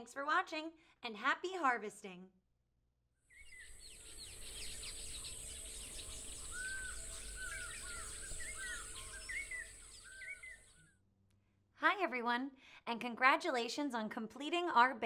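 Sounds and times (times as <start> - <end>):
birds chirping: 3.3 - 10.9.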